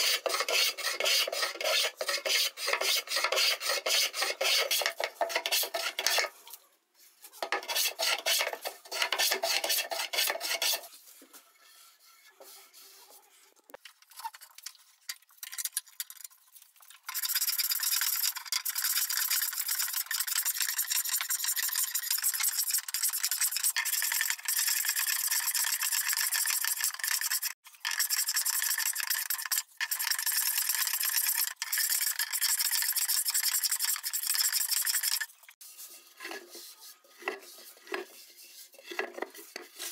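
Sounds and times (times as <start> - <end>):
hand plane shaving wood: 0.0 - 6.3, 7.4 - 10.9.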